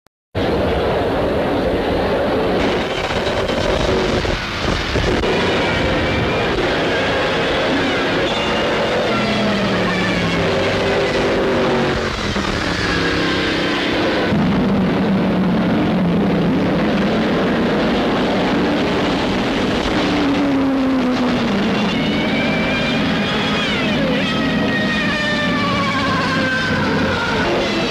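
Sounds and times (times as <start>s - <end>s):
racing car engines passing at high revs: 0.4s - 27.9s.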